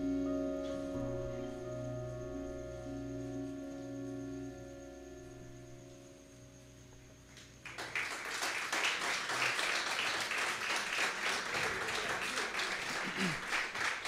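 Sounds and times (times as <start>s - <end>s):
audience applause: 7.6s - 14.0s.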